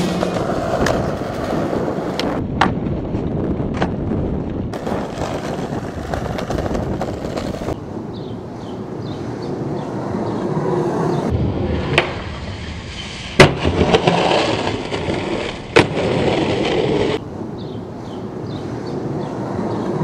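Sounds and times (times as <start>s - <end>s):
skateboard clacking on ground: 0.0s - 2.8s, 4.7s - 7.8s
skateboard wheels rolling on pavement: 0.0s - 20.0s.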